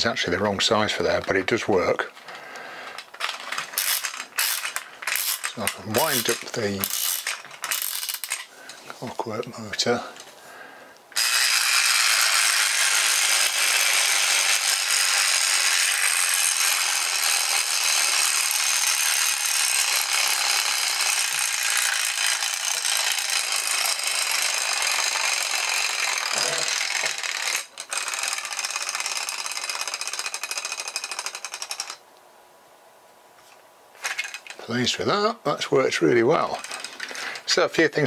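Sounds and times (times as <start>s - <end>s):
clockwork motor ticking rattle: 3.0s - 8.5s, 11.2s - 32.0s, 36.5s - 37.2s.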